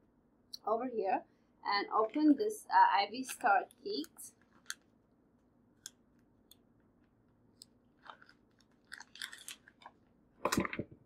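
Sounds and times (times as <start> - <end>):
plastic wrapper crinkling: 8.0 - 10.8.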